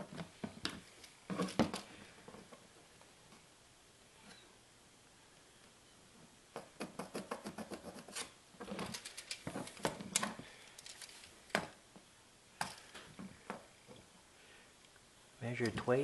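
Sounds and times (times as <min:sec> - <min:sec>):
pencil scratching on plastic: 0:06.8 - 0:08.9.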